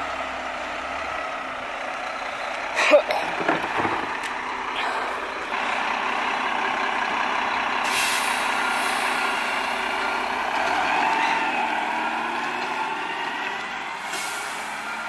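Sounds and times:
diesel truck engine running: 0.0s - 15.0s
air brake hiss: 7.9s - 9.4s, 14.0s - 14.8s.

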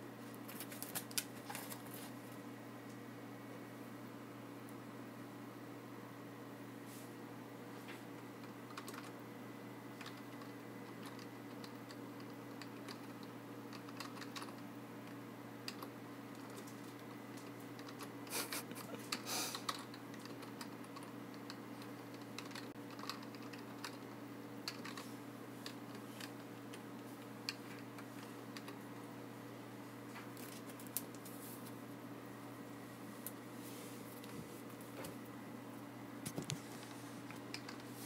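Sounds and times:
keyboard typing: 8.7s - 9.2s, 10.0s - 14.6s, 19.1s - 25.0s.

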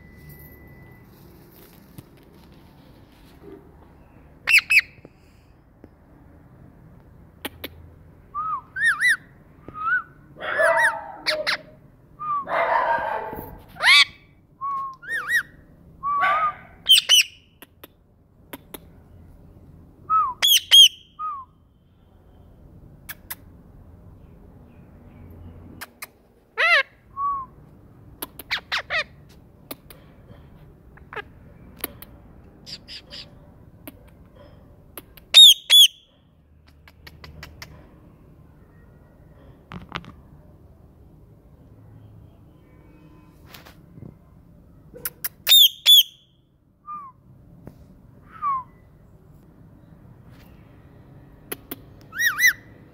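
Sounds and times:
parakeet squawking and chirping: 4.4s - 5.0s, 8.8s - 9.3s, 10.6s - 11.8s, 13.7s - 14.3s, 15.0s - 15.6s, 16.2s - 17.5s, 20.4s - 21.1s, 26.6s - 27.0s, 28.2s - 29.3s, 32.6s - 33.4s, 35.3s - 36.1s, 45.4s - 46.3s, 52.1s - 52.7s.

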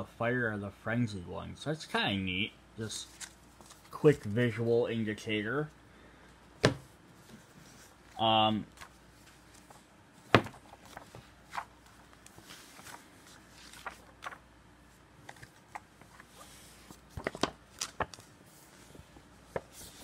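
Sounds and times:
paper pages rustling: 3.0s - 4.2s, 7.2s - 14.5s, 15.2s - 20.0s.

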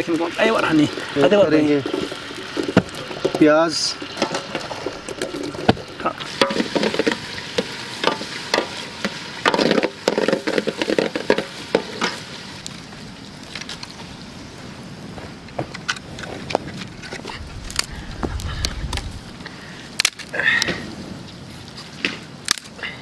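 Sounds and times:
onions sizzling in oil: 0.0s - 14.7s.

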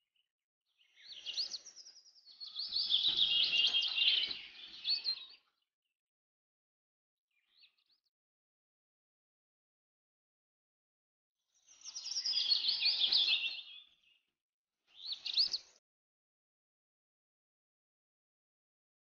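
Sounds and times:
birds chirping: 0.8s - 5.5s.

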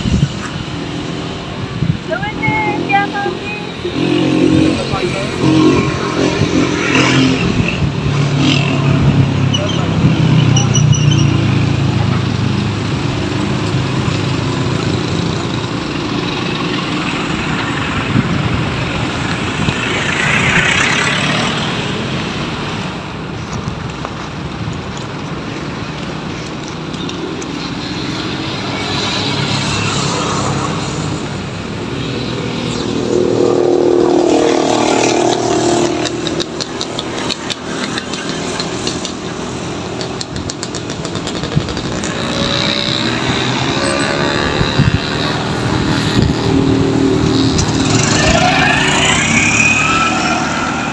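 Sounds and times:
road traffic passing: 0.0s - 50.9s
engine drone: 2.6s - 10.5s, 24.8s - 50.9s.

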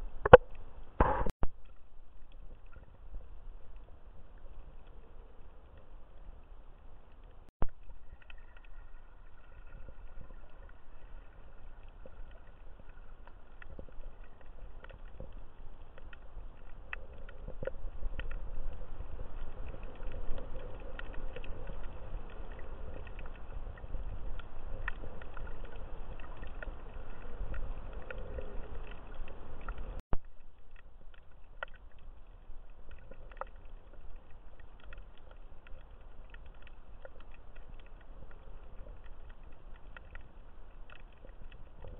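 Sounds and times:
faint clicks and crackles: 0.0s - 41.9s
underwater rumble of moving water: 0.0s - 41.9s
sharp pop: 1.0s - 1.3s.

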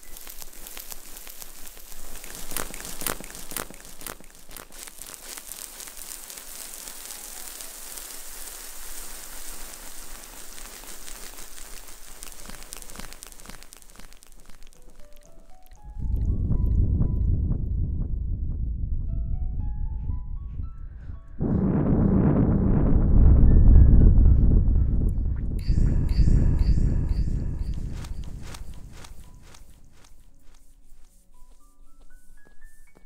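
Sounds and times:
crinkly crackling rustle: 0.0s - 16.4s, 25.6s - 33.0s.

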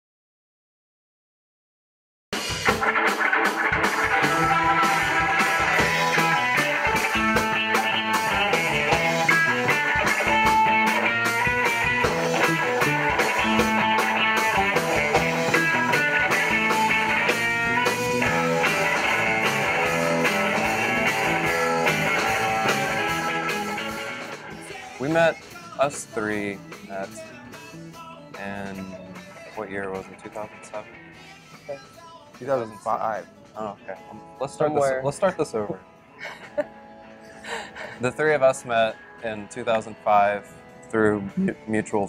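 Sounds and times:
rock band playing: 2.4s - 31.7s.

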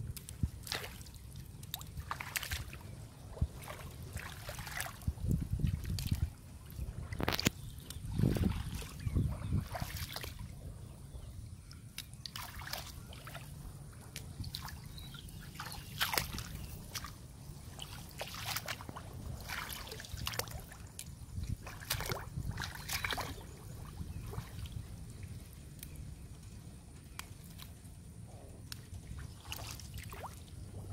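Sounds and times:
muddy water splashing: 0.0s - 10.7s, 11.7s - 26.3s, 27.0s - 27.9s, 28.6s - 30.9s
low steady rumble: 0.0s - 30.9s
plant roots snapping: 7.2s - 8.0s.

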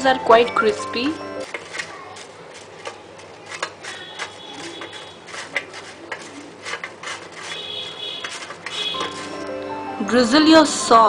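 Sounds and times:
fried potato cubes clicking: 1.0s - 9.4s
rustling on paper towel: 1.4s - 9.5s.

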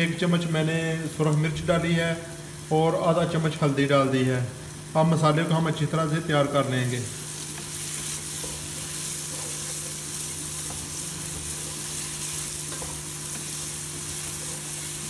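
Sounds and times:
masala sizzling in hot oil: 0.0s - 15.0s
wooden spoon stirring in a pot: 7.1s - 15.0s.

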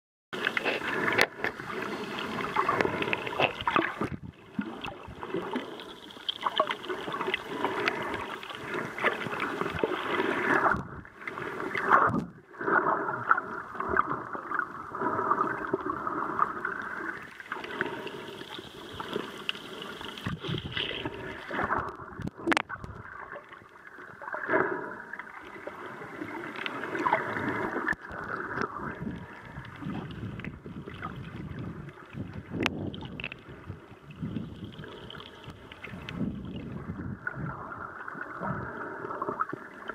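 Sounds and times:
crackles and bubbling: 0.3s - 39.9s
underwater rush of water: 0.4s - 39.9s.

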